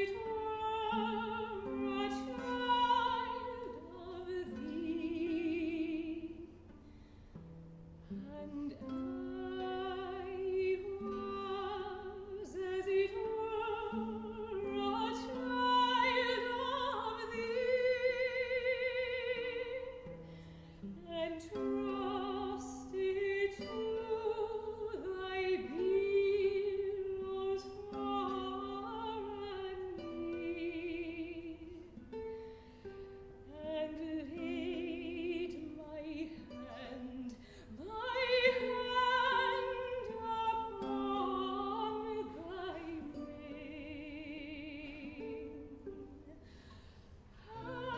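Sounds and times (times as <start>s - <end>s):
soprano singing operatically: 0.0s - 6.7s, 8.1s - 20.2s, 20.8s - 32.2s, 33.2s - 46.4s, 47.4s - 47.9s
plucked guitar: 0.0s - 47.9s.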